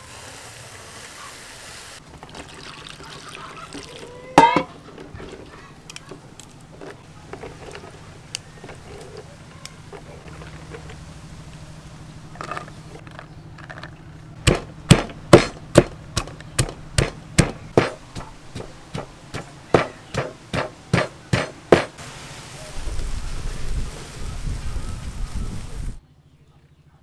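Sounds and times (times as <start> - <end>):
pestle pounding in a mortar: 14.4 - 22.0.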